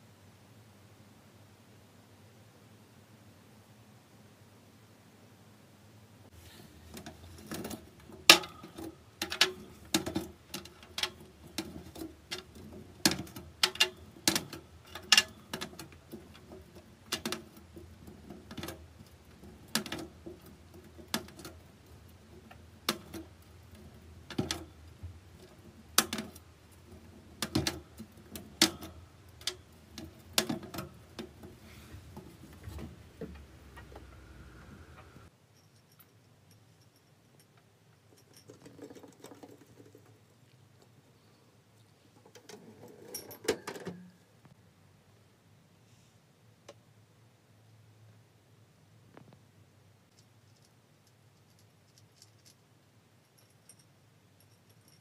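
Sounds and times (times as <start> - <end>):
low steady hum: 0.0 - 38.5.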